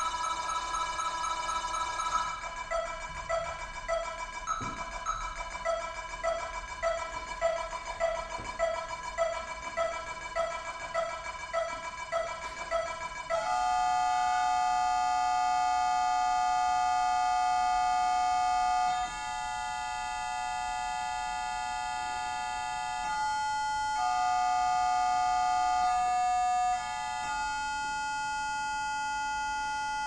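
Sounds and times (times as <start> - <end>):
electronic metronome beeps: 0.0 - 13.5
held electronic tones: 0.0 - 15.0.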